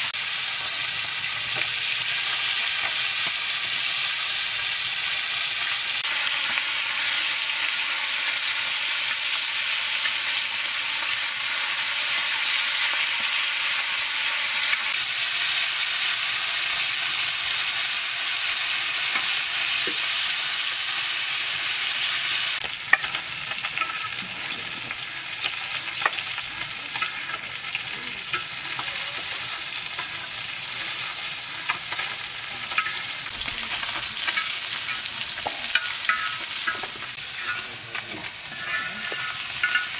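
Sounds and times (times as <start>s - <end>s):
fish sizzling in oil: 0.0s - 39.9s
metal spatula scraping pan: 26.9s - 39.9s.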